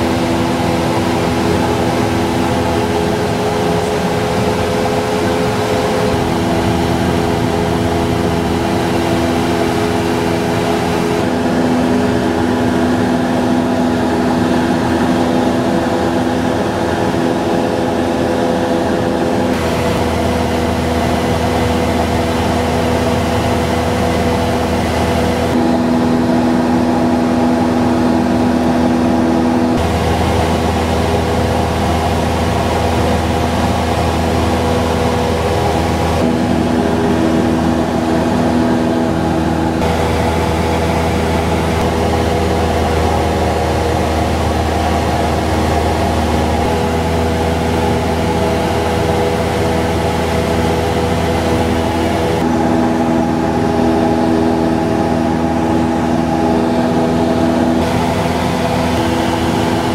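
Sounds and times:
airplane engine droning in cabin: 0.0 - 59.9.

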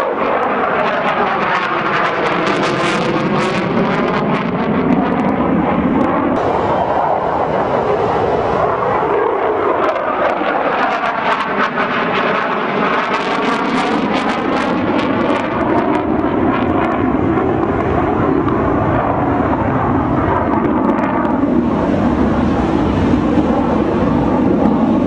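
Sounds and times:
fighter jet roaring: 0.0 - 25.0.

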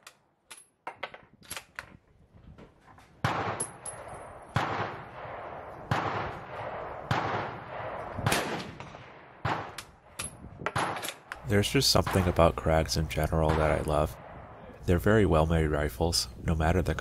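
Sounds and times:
rifle shots: 3.2 - 11.4.

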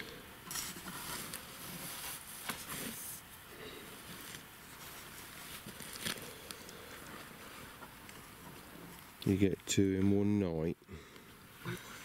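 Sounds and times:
nylon mat rustling: 0.7 - 3.3, 3.9 - 9.1.

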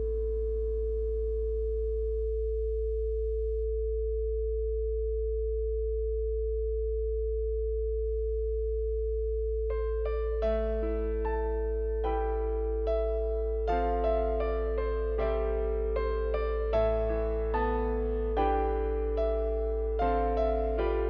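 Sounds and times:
soft piano music: 0.0 - 0.6, 9.7 - 21.0
low sine tone: 0.0 - 21.0
steady pure tone: 0.0 - 21.0.

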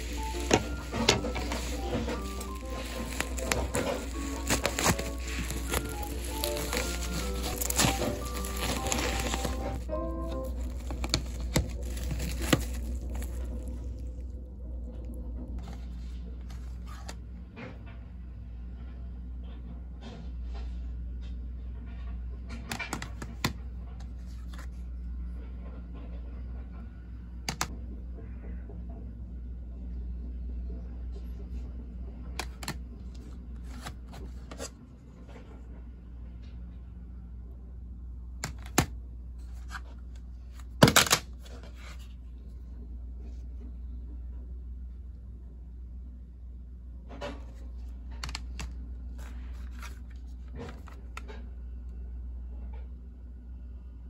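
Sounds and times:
plastic cases being handled: 0.0 - 13.7, 38.4 - 38.9, 47.5 - 51.3
scraping rustle: 0.0 - 13.8
steady low hum: 0.0 - 22.6.

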